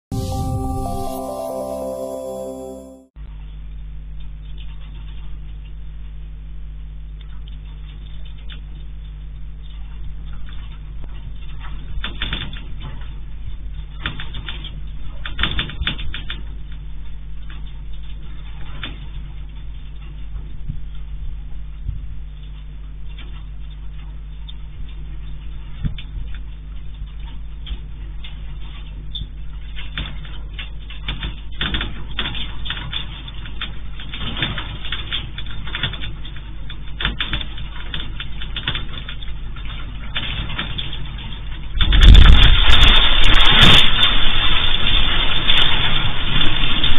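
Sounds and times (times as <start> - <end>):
low hum: 0.1 - 3.2
low electrical hum: 3.3 - 46.9
small clicks and ticks: 22.4 - 46.0
earthquake deep rumble: 37.2 - 46.9.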